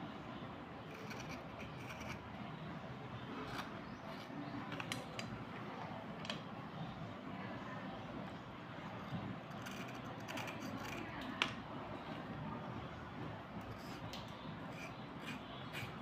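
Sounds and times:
blade scraping pencils: 0.9s - 2.2s, 9.5s - 11.4s, 13.6s - 16.0s.

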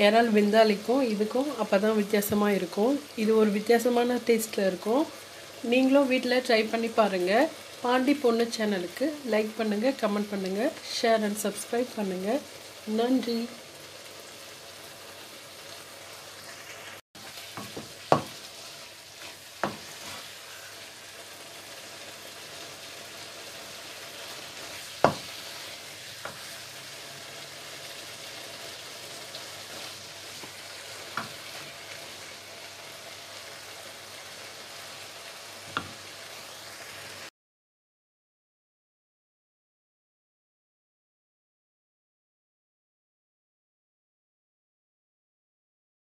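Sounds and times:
food sizzling in a wok: 0.0s - 37.3s
spatula knocking against pan: 19.6s - 19.9s, 25.0s - 25.3s.

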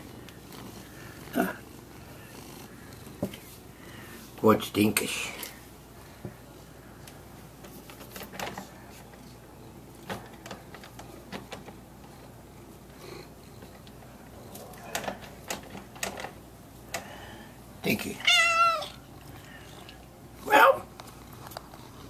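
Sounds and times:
cat purring: 0.0s - 3.5s
soft clicks and rustles: 5.4s - 17.1s, 20.9s - 22.0s
cat crying: 18.2s - 19.0s.

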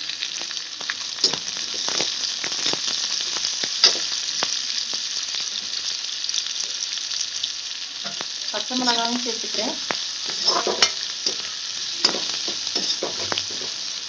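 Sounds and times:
onions sizzling in hot oil: 0.0s - 14.0s
metal spoon scraping a pan: 1.2s - 2.8s, 10.2s - 13.8s.

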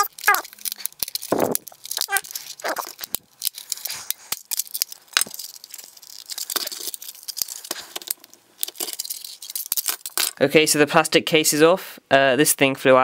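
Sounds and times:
plastic clips cracking and snapping: 0.0s - 7.4s.

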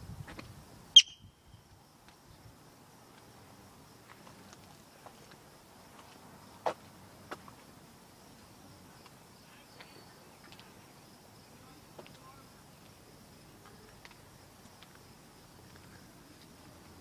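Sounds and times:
insect trill: 0.8s - 4.2s.

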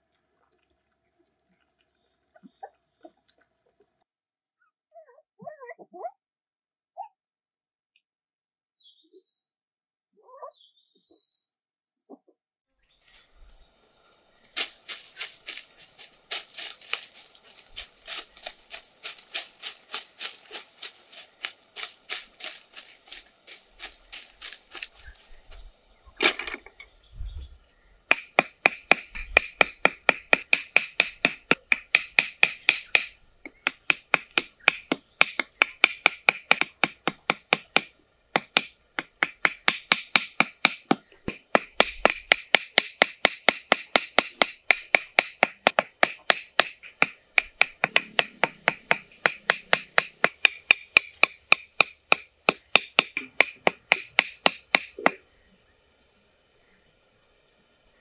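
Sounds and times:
hand tool striking material: 14.6s - 25.6s, 28.1s - 55.2s.

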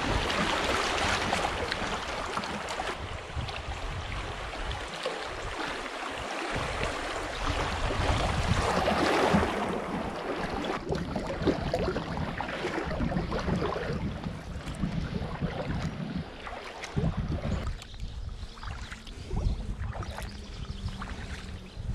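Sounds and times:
river water rushing and splashing: 0.0s - 14.2s
wind rumbling on microphone: 0.0s - 21.9s.

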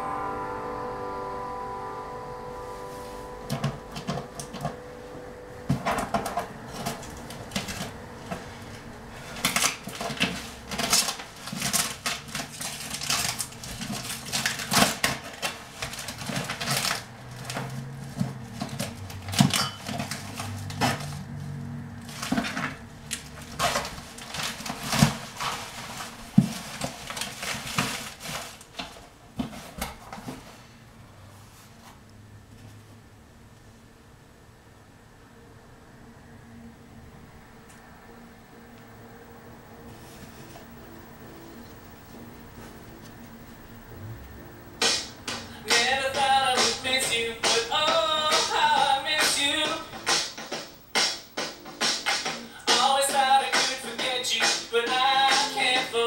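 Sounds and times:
cardboard rustling: 5.7s - 30.8s
tape ripping off cardboard: 9.4s - 17.6s.

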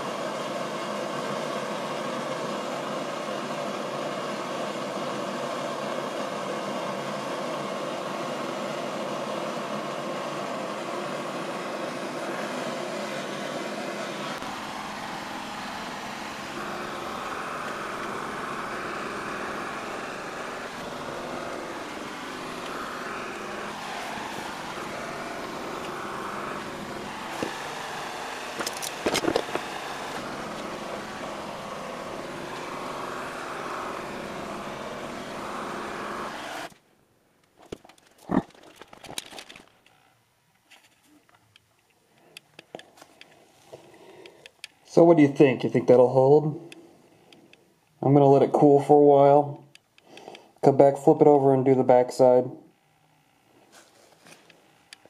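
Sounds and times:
propane torch hissing: 12.0s - 36.7s.

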